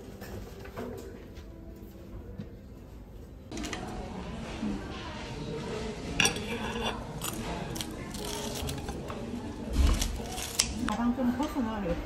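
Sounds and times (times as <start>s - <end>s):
low background murmur: 0.0s - 12.0s
tableware clinking: 6.1s - 7.4s.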